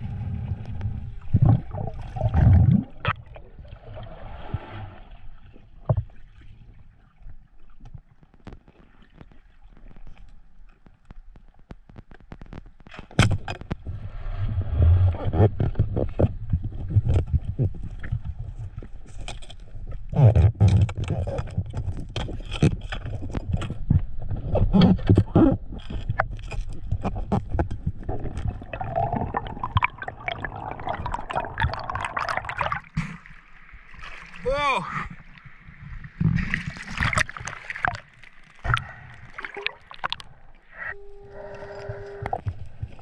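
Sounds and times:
bubbly rush of water: 0.0s - 7.4s, 27.0s - 40.6s
underwater knocks and thumps: 15.1s - 33.4s, 35.8s - 40.4s.

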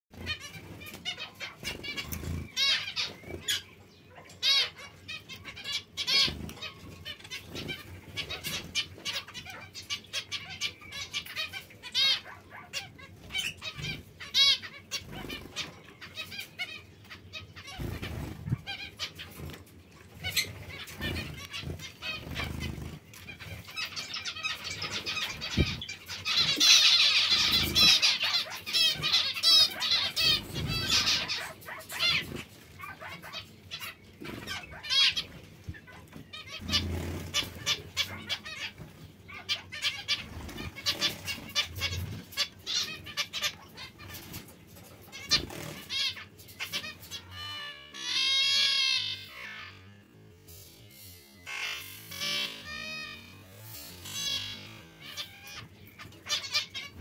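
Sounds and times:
finches chirping and calling: 0.2s - 57.0s.

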